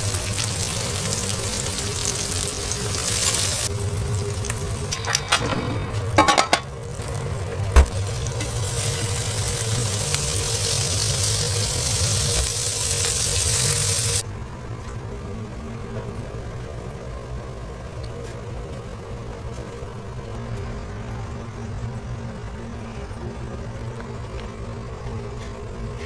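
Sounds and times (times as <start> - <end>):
food sizzling on a griddle: 0.0 - 5.1, 6.2 - 14.2.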